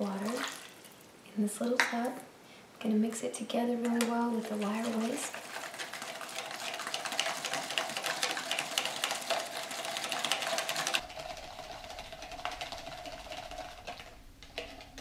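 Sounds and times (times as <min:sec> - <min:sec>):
slow stirring: 0:03.8 - 0:15.0
whisk rattling in plastic cup: 0:04.3 - 0:15.0.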